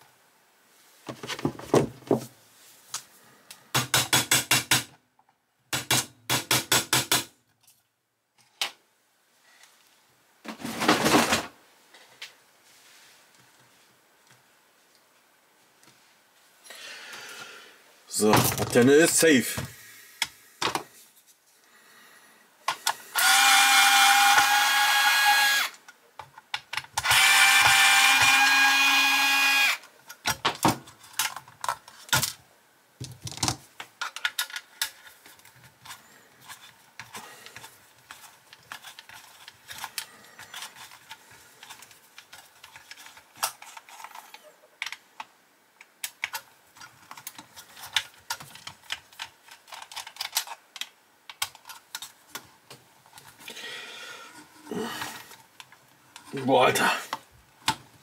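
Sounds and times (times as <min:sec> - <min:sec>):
cordless drill whining: 0:23.1 - 0:25.8, 0:27.0 - 0:29.8
small parts clicking and rattling: 0:33.0 - 0:52.5.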